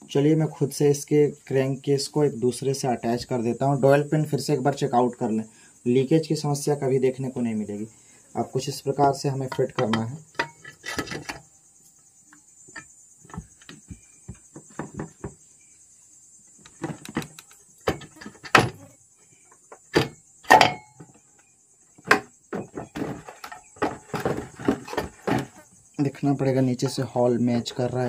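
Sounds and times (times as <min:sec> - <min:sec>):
metal parts knocking and clunking: 0:09.4 - 0:11.4, 0:12.7 - 0:15.4, 0:16.6 - 0:18.8, 0:19.5 - 0:21.2, 0:22.0 - 0:25.6.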